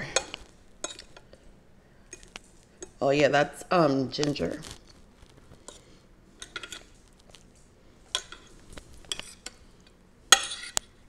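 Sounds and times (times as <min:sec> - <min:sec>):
fork clinking on ceramic bowl: 0:00.1 - 0:01.1.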